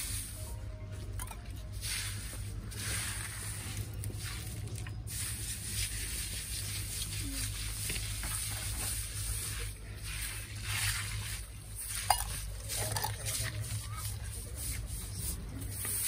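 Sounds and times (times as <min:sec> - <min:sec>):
brush scrubbing wet stones: 0:00.0 - 0:00.5, 0:01.4 - 0:16.0.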